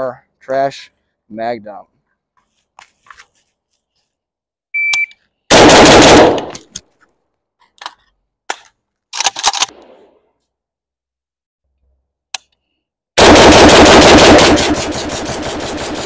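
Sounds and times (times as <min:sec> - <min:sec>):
short beep: 0:04.8 - 0:05.2
rifle firing rapid shots: 0:05.5 - 0:06.5, 0:13.2 - 0:16.0.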